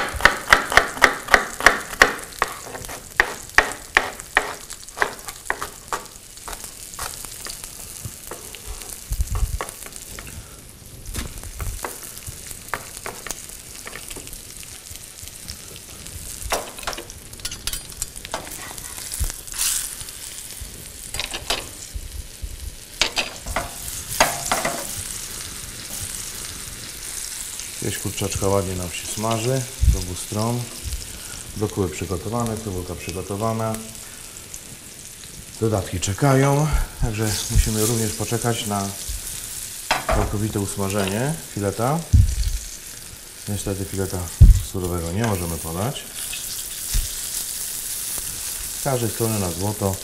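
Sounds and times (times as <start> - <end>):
knife chopping on wooden board: 0.0 - 6.1
chicken sizzling in frying pan: 0.0 - 50.0.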